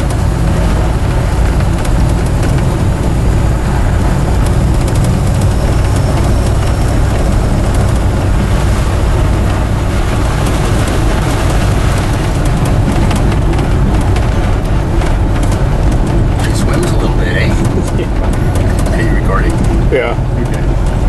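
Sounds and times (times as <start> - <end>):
road noise: 0.0 - 21.0
truck engine running: 0.0 - 21.0.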